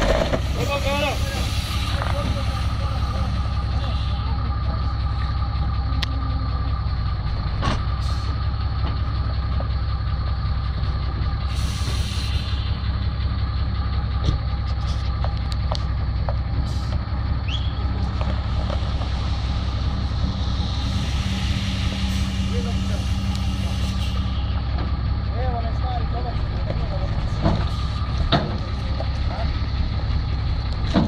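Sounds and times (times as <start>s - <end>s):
diesel truck engine idling: 0.0s - 31.0s.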